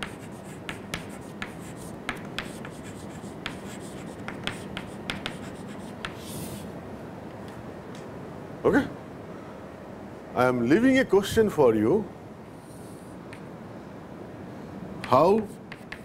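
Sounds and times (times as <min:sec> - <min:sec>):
chalk tapping and scratching: 0:00.0 - 0:06.6, 0:15.0 - 0:16.0
chalk scraping a line: 0:00.0 - 0:06.7, 0:15.4 - 0:16.0.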